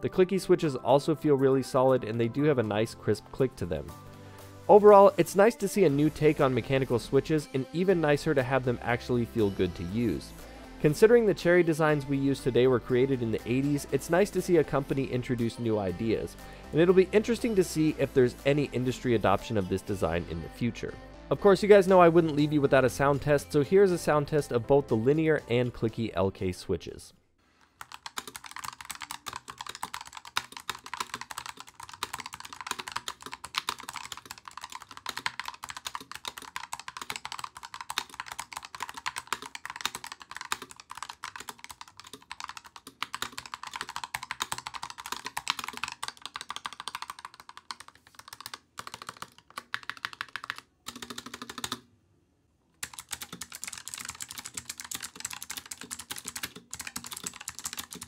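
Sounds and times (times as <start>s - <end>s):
fast typing on keyboard: 4.7s - 10.2s, 10.9s - 19.3s, 27.8s - 51.8s, 52.8s - 58.0s.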